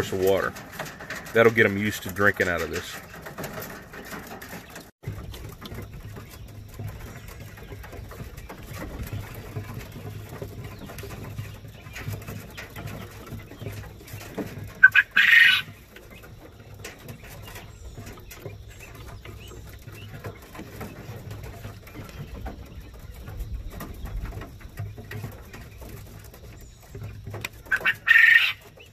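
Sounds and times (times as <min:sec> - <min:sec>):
quail pecking clicks: 0:00.0 - 0:28.9
harsh quail call: 0:14.8 - 0:15.8, 0:27.7 - 0:28.7.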